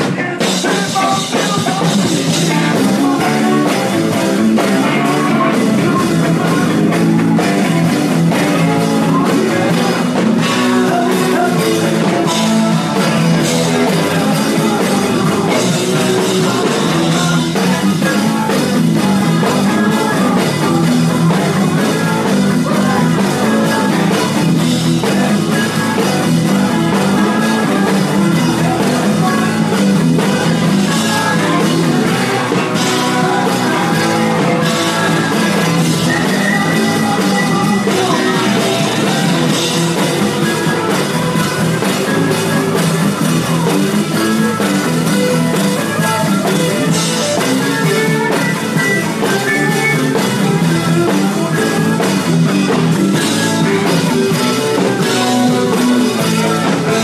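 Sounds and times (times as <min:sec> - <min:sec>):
live rock band playing: 0:00.0 - 0:57.0
person singing: 0:00.0 - 0:57.0.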